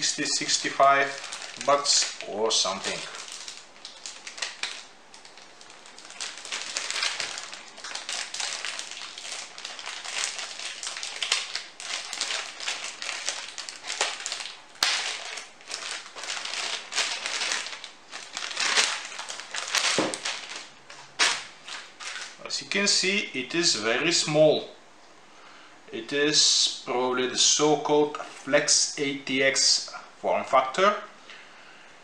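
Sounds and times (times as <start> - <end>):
plastic bag crinkling: 0.0 - 22.4.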